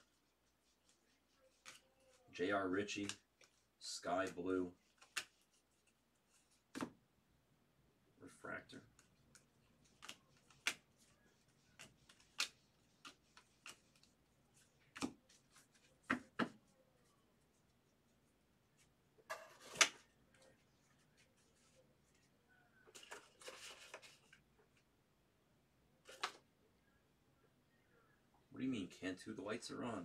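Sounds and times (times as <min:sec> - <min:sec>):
cards rustling: 0:00.0 - 0:06.9, 0:08.8 - 0:16.7, 0:18.8 - 0:22.3, 0:22.9 - 0:24.9, 0:26.0 - 0:26.4
cards clicking and tapping: 0:01.6 - 0:01.8, 0:05.0 - 0:05.4, 0:08.9 - 0:14.2, 0:14.8 - 0:15.3, 0:16.0 - 0:16.6, 0:19.6 - 0:20.0, 0:26.1 - 0:26.4.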